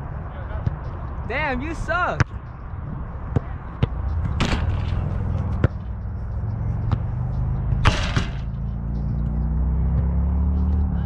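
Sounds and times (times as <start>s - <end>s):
low rumble: 2.7s - 9.2s
distant ball kicks: 3.3s - 6.0s, 6.8s - 7.1s, 7.7s - 8.6s
ball hitting goal net: 4.2s - 5.8s, 7.8s - 8.5s.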